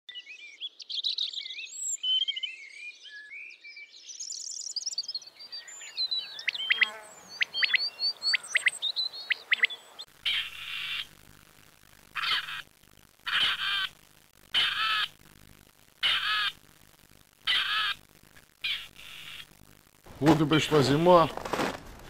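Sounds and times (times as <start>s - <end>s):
birds chirping and twittering: 0.1s - 11.2s
harsh rasping bird call: 6.4s - 11.1s, 12.1s - 15.2s, 16.0s - 16.6s, 17.4s - 18.0s, 18.6s - 19.5s.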